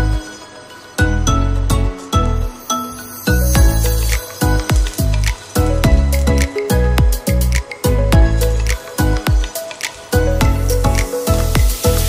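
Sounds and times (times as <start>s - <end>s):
sharp percussion hits: 3.2s - 7.3s.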